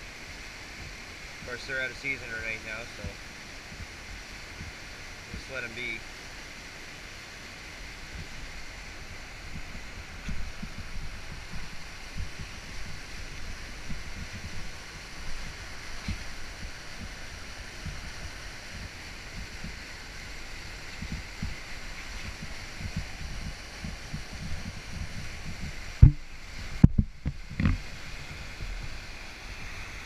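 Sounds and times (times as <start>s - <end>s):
water rushing through dam outflow: 0.0s - 30.0s
wind buffeting microphone: 7.8s - 30.0s.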